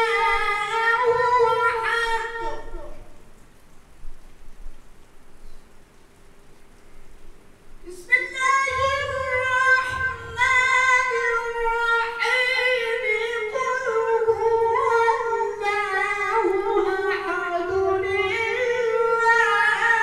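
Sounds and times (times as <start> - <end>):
man reciting melodically: 0.0 - 3.2, 7.8 - 20.0.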